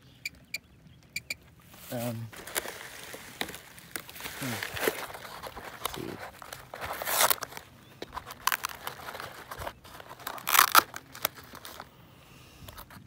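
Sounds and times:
phone handling rustle: 1.8 - 11.9.

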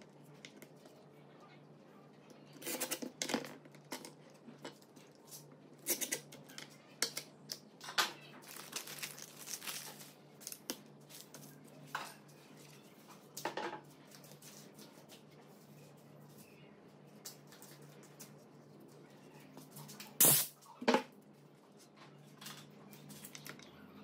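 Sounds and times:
plastic bags crinkling: 8.4 - 11.6.

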